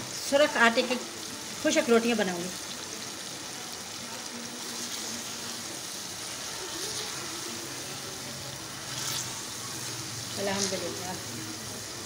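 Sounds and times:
food sizzling in a metal pan: 0.0 - 12.0.

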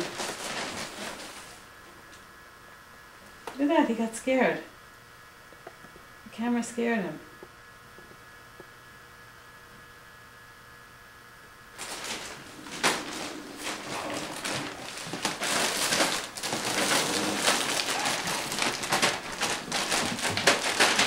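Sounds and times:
plastic packaging crinkling: 0.0 - 1.6, 11.8 - 21.0
faint electrical hum: 0.0 - 21.0.

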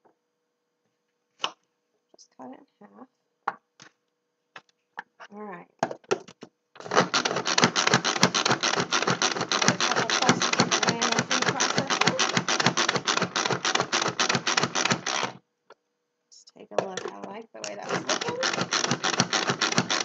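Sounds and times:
food processor plunger clattering: 6.8 - 15.4, 16.8 - 20.0.

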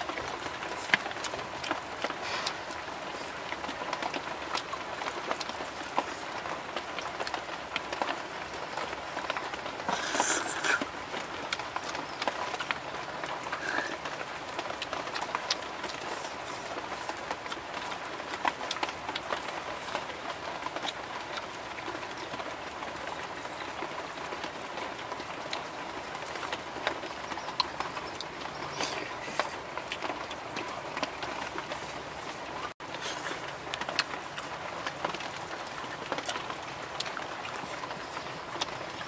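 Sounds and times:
background hiss: 0.0 - 18.3.

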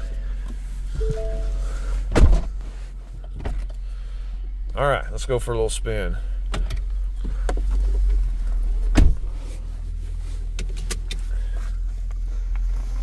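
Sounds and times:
loud thump: 2.1 - 2.5.

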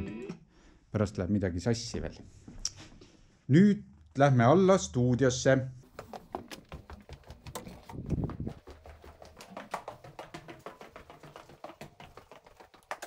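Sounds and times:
footsteps going down stairs: 5.8 - 13.0.

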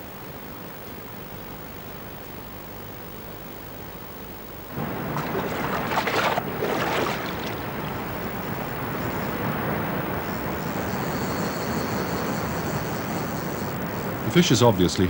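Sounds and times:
river water rushing: 4.7 - 10.6.

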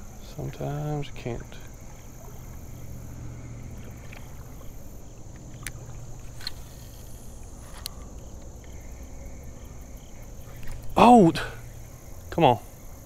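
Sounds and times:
high drone of insects: 0.0 - 13.0
low steady rumble: 0.0 - 13.0
faint clicks: 3.8 - 4.4, 5.3 - 8.8.

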